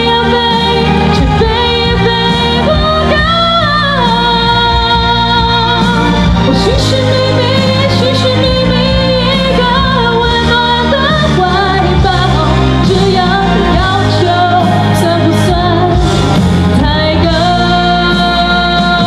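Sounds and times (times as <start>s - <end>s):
instrumental accompaniment: 0.0s - 19.0s
woman singing into microphone: 0.0s - 19.0s.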